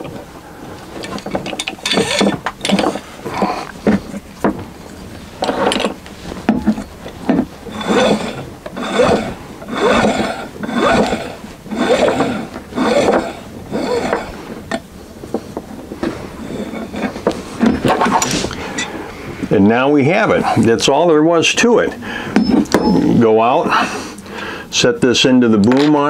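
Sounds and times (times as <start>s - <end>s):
rope rubbing through pulley: 0.8s - 18.9s.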